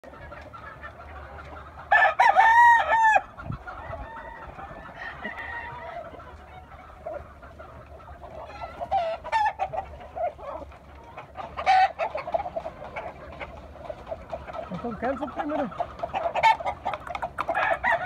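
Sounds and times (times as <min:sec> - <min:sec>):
roosters clucking: 0:00.0 - 0:18.0
rooster crowing: 0:01.9 - 0:06.0, 0:17.5 - 0:18.0.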